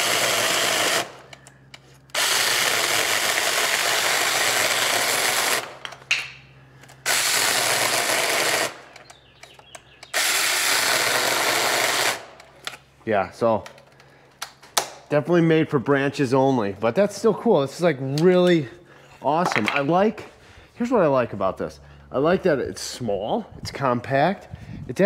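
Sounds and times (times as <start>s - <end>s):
cordless chainsaw cutting wood: 0.0s - 1.3s, 2.1s - 5.8s, 7.0s - 9.0s, 10.1s - 12.4s.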